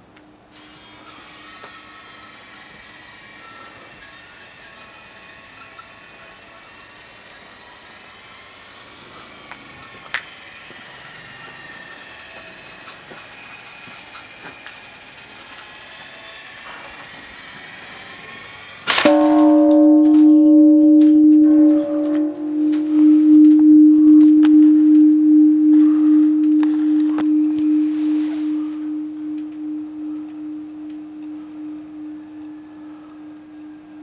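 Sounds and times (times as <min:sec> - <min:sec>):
large temple bell ringing: 0:19.0 - 0:34.0.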